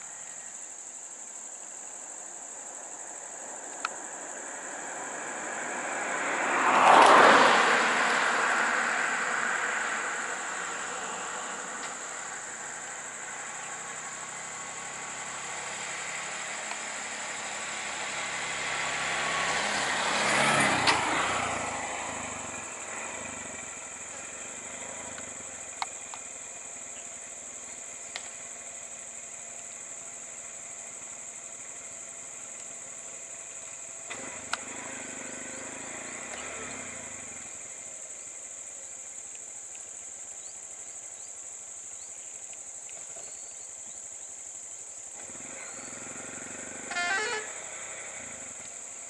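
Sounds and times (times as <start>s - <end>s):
vehicle passing close: 4.0s - 38.7s, 45.1s - 49.0s
vehicles idling: 8.4s - 49.0s
sharp clicks: 34.1s - 34.7s.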